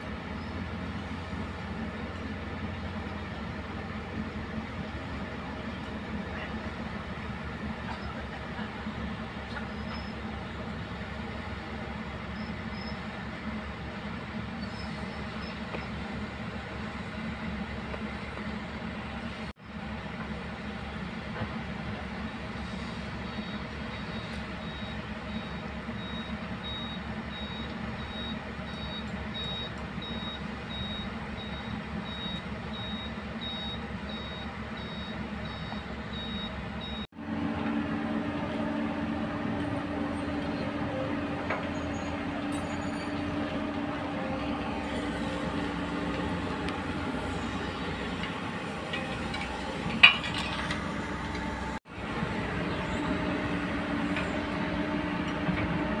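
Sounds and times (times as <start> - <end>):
diesel engines running: 0.0 - 56.0
reversing alarm beeping: 23.2 - 37.1
metal clank: 48.1 - 51.8.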